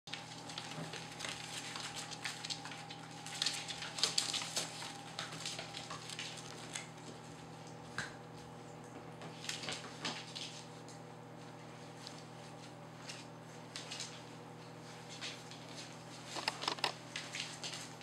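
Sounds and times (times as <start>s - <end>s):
puppy claws scratching wooden floor: 15.1s - 17.9s.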